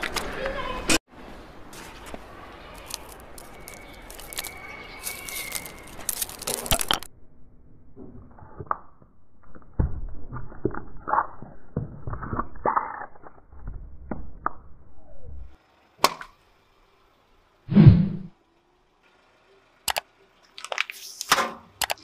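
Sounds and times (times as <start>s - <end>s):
lollipops clicking on paving: 2.7s - 7.1s, 21.8s - 22.0s
toothpaste tubes crushed by tyre: 2.8s - 7.1s.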